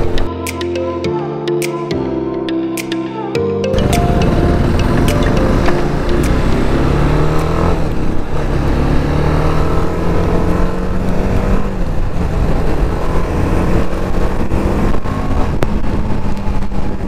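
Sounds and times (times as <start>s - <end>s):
motorcycle engine cruising: 3.7s - 17.0s
wind rumble on microphone: 6.6s - 17.0s.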